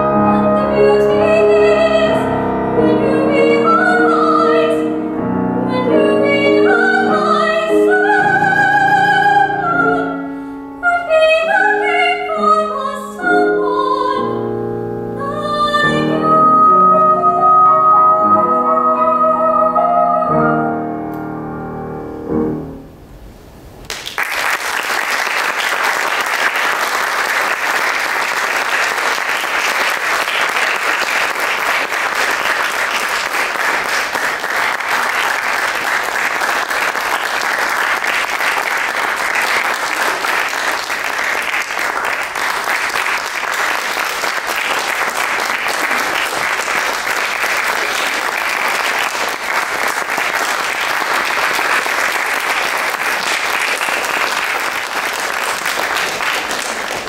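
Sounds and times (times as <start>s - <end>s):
soprano singing: 0.0s - 21.0s
grand piano chord: 14.3s - 23.8s
audience applause: 23.9s - 57.0s.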